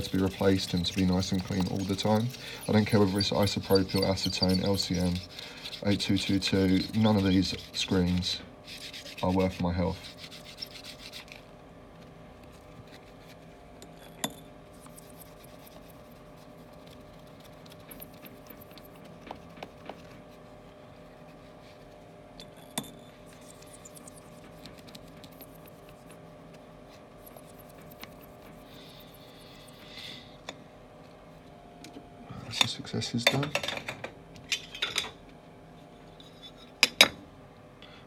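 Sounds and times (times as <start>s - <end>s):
sponge scratching on glass: 0.0s - 11.4s, 14.8s - 22.0s, 23.2s - 26.3s, 26.9s - 29.9s
extraction fans humming: 0.0s - 36.3s.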